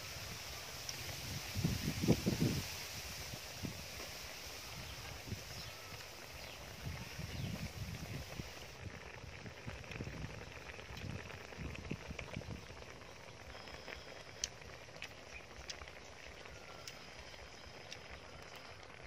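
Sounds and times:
chewing: 0:13.8 - 0:19.0.

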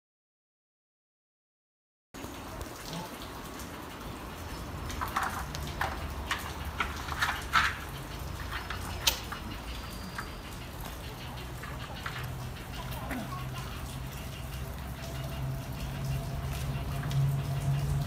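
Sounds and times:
low outdoor hum: 0:02.2 - 0:18.0.

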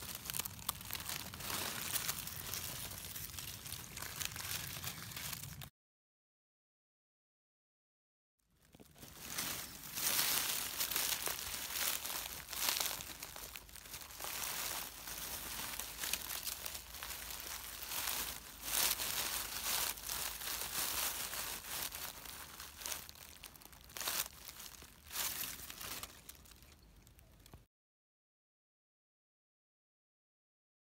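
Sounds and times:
dry leaves rustling: 0:00.0 - 0:05.7, 0:08.6 - 0:27.5.

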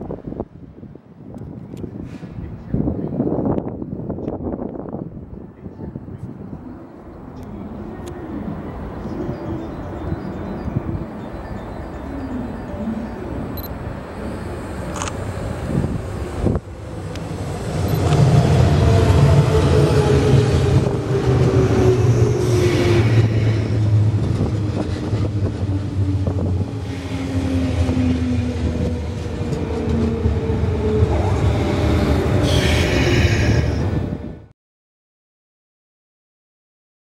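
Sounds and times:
electric train running past: 0:06.0 - 0:34.5.

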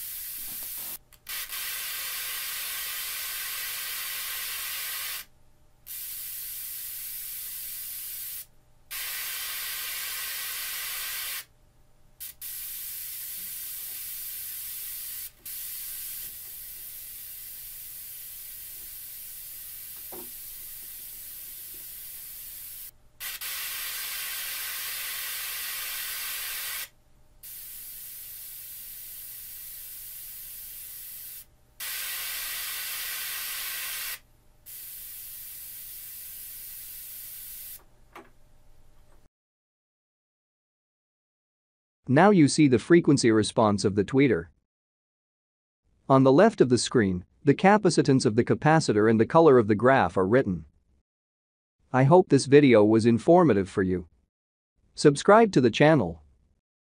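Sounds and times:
tweeter playing test noise hiss: 0:00.0 - 0:05.3, 0:05.9 - 0:11.5, 0:12.2 - 0:38.3.

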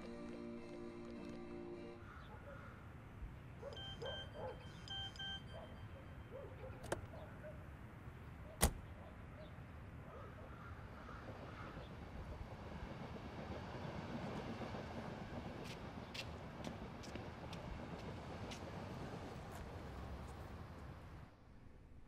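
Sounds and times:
faint short beeps: 0:03.8 - 0:06.4.

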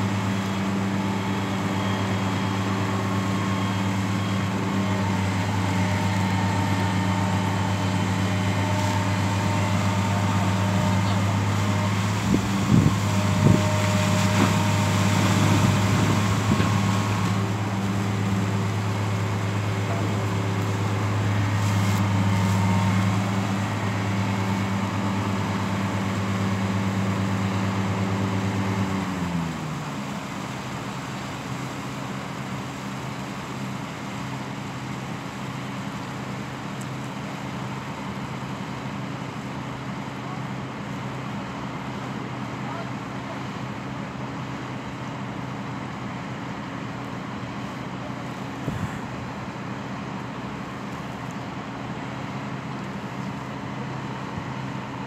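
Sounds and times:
excavator diesel engine running: 0:00.0 - 0:55.0
water pouring and splashing: 0:11.2 - 0:27.8.

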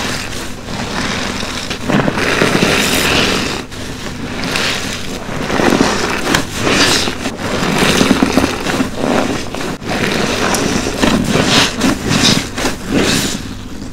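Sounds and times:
sponge squelching: 0:00.0 - 0:13.9.

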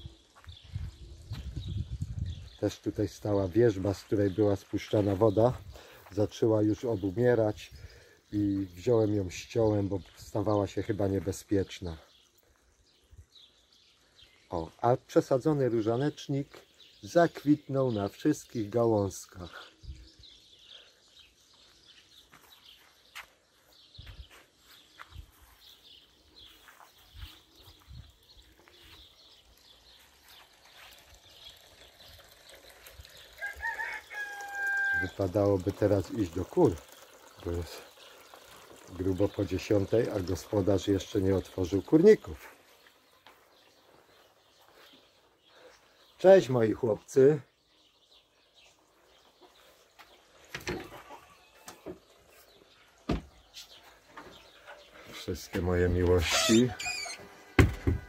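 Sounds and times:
small birds chirping: 0:00.0 - 0:58.0
knocks and scuffs of walking: 0:21.4 - 0:29.3, 0:42.4 - 0:45.3, 0:48.6 - 0:58.0
soft footsteps: 0:21.5 - 0:31.1, 0:42.4 - 0:45.4
rooster crowing: 0:33.4 - 0:35.1.

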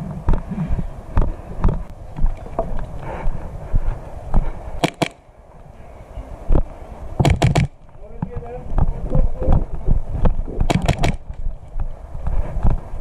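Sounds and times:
sharp cracks: 0:04.8 - 0:05.2, 0:06.6 - 0:08.3, 0:10.2 - 0:11.5.

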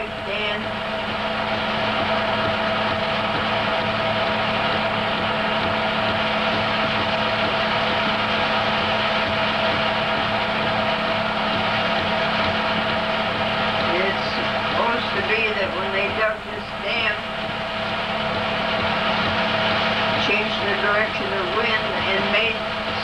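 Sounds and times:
film projector whirring: 0:00.0 - 0:23.0.

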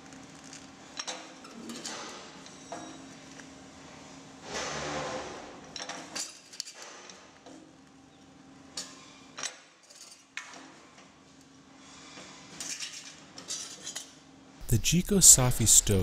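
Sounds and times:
faint steady hum: 0:14.6 - 0:16.0.

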